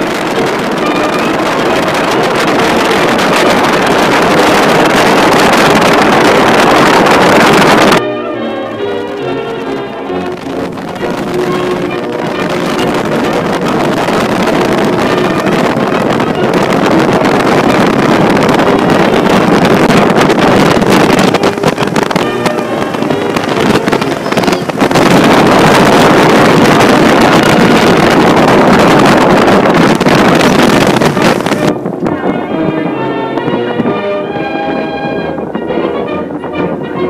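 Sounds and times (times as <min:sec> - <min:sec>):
ferry engine and water rushing: 0:00.0 - 0:37.0
wind on microphone: 0:00.0 - 0:37.0.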